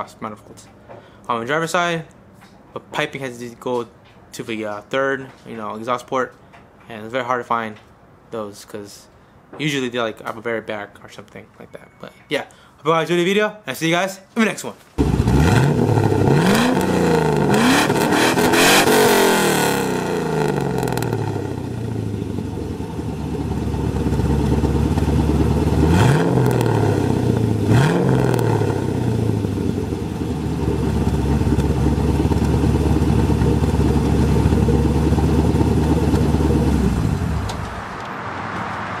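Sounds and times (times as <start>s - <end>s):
car engine revving and idling: 15.0s - 39.0s.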